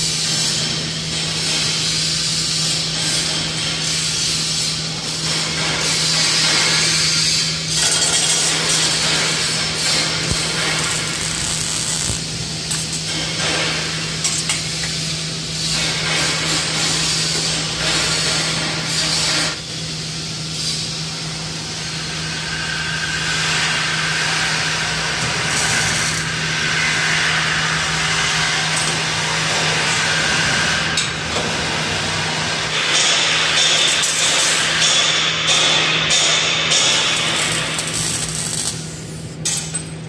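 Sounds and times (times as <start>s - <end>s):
arc welding crackling and hissing: 0.0s - 40.0s
tool scraping on steel: 5.4s - 14.7s
low machine hum: 7.5s - 15.6s, 36.8s - 40.0s.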